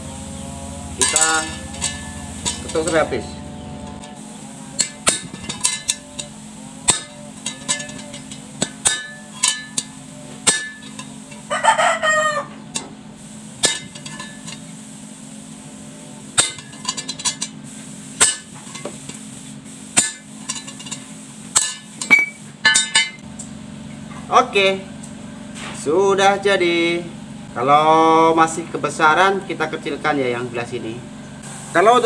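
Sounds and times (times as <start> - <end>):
hammer striking steel punch: 1.0 - 3.2, 4.8 - 11.1, 13.6 - 14.5, 16.4 - 16.8, 18.2 - 18.6, 20.0 - 20.6, 21.6 - 23.2
rooster crowing: 11.4 - 12.7.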